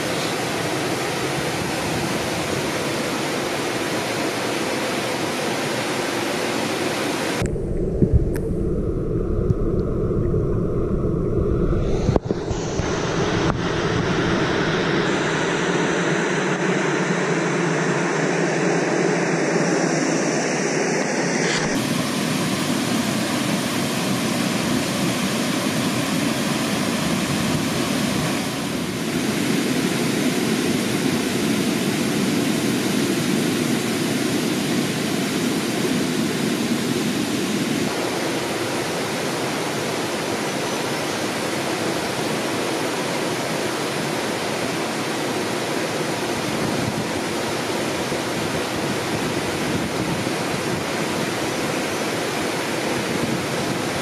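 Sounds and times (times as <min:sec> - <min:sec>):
rushing water: 0:00.0 - 0:08.4, 0:21.7 - 0:54.0.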